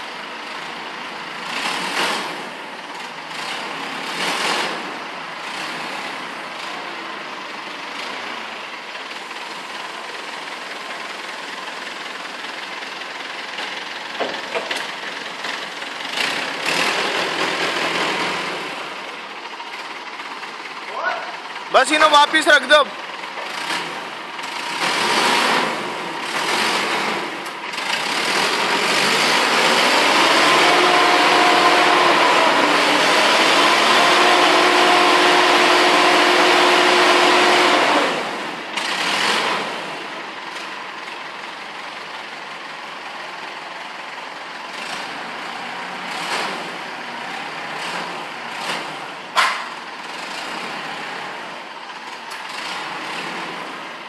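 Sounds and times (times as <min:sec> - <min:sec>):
forklift engine running: 0:00.0 - 0:54.0
sharp clack: 0:48.7 - 0:49.8.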